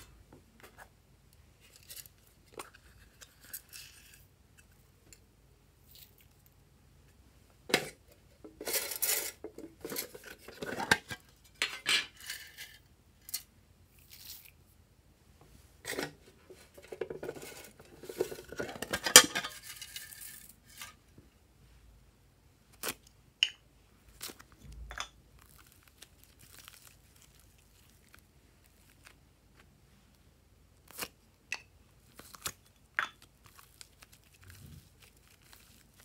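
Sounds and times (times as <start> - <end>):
metal tin handled and tipped: 7.7 - 13.5, 15.8 - 21.0.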